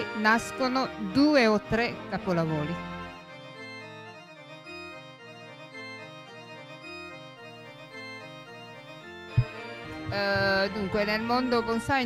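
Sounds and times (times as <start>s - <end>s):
organ-like keyboard chords: 0.0s - 12.0s
slow bass line: 9.3s - 10.7s.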